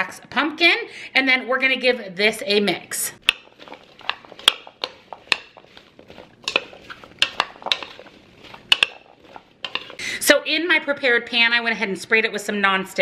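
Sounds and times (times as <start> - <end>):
metal spoon stirring in bowl: 3.2 - 10.0.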